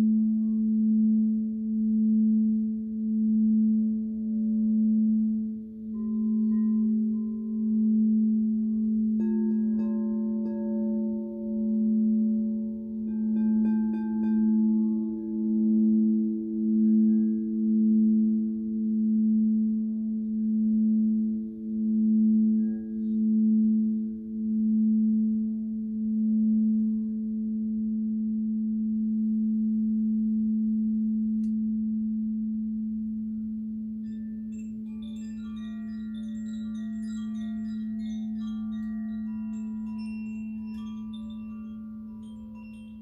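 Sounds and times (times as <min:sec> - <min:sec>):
singing bowl tone: 0:00.0 - 0:43.0
high chime notes: 0:34.1 - 0:43.0.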